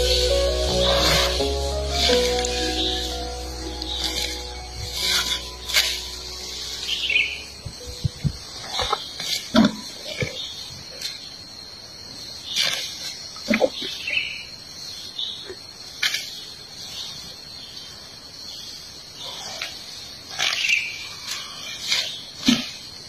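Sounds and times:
elephant tearing up grass: 0:00.0 - 0:03.1, 0:03.8 - 0:07.4
high insect buzz: 0:00.0 - 0:09.7.

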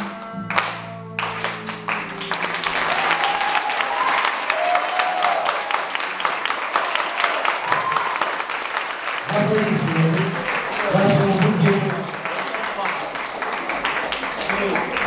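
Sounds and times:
audience applauding: 0:00.0 - 0:15.0
people cheering: 0:00.0 - 0:15.0.

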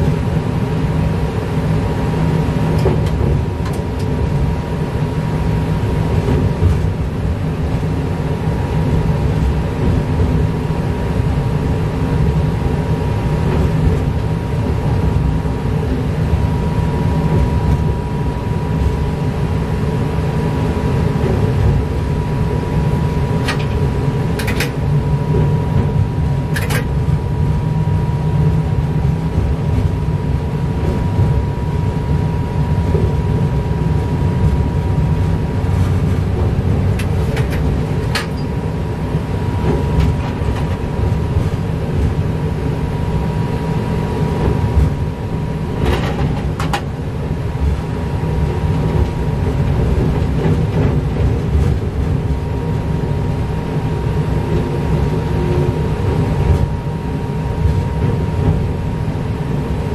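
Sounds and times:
train rumbling along track: 0:00.0 - 0:59.9
wheels clicking over rail joints: 0:24.4 - 0:24.8, 0:26.5 - 0:26.9.

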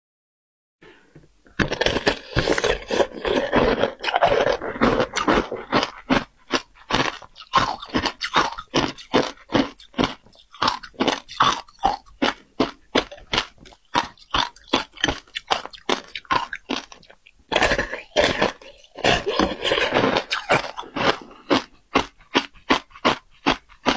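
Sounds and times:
crunching shaved ice: 0:01.6 - 0:23.9.

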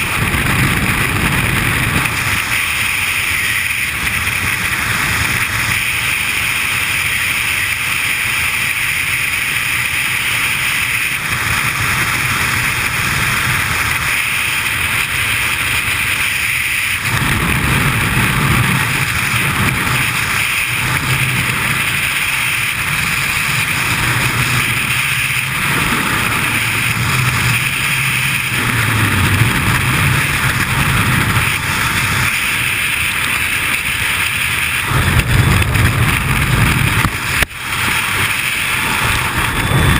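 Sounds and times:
wind rushing over microphone: 0:00.0 - 0:39.9
deep uneven buffeting: 0:16.9 - 0:39.9.

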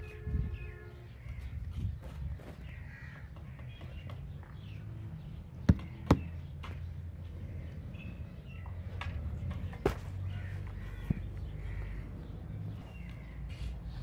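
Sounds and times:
faint bird calls: 0:10.3 - 0:14.0.

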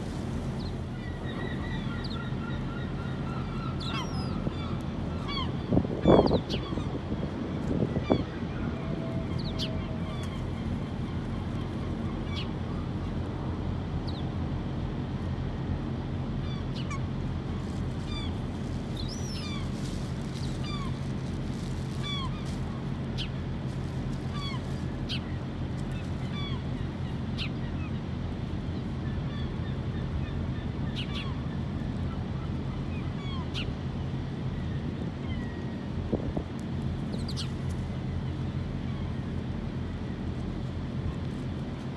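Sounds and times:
steady low rumble: 0:00.0 - 0:41.9
gulls calling: 0:00.5 - 0:13.1, 0:16.3 - 0:36.0.

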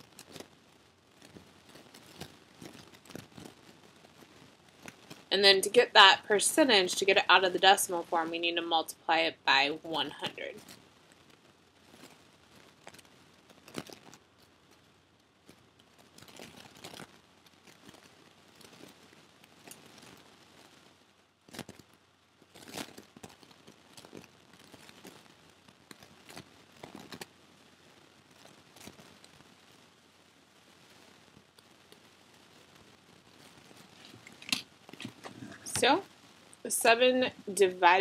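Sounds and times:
stylus tapping and scratching on screen: 0:00.0 - 0:20.9, 0:30.8 - 0:38.0.

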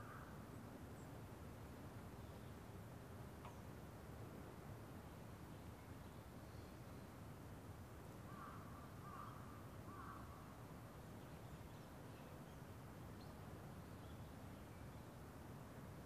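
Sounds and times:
crow cawing: 0:08.3 - 0:10.3.

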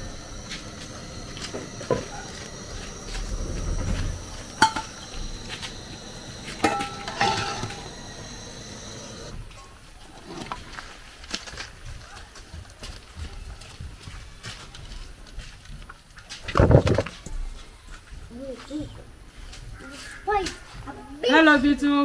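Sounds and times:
faint high whine: 0:00.0 - 0:09.5
metal cookware clanking: 0:04.6 - 0:05.2, 0:06.5 - 0:08.1.

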